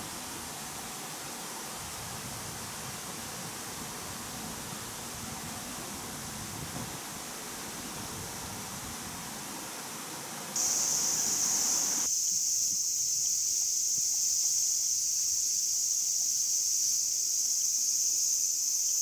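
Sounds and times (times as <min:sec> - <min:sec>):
soft noise hiss: 0:00.0 - 0:19.0
cicada buzzing: 0:10.6 - 0:19.0.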